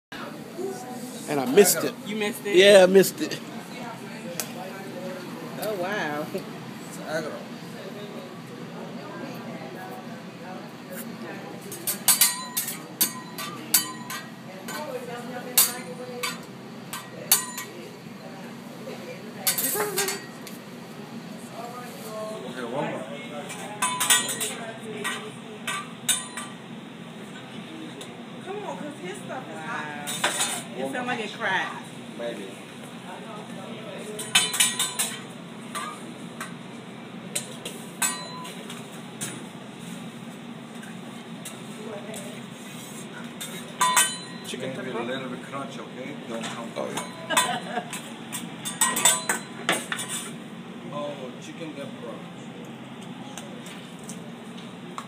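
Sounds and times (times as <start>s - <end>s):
metal spatula clinking on griddle: 11.8s - 14.9s, 15.6s - 17.8s, 23.8s - 26.6s, 34.2s - 36.0s, 38.0s - 38.6s, 43.4s - 44.6s, 46.9s - 50.3s.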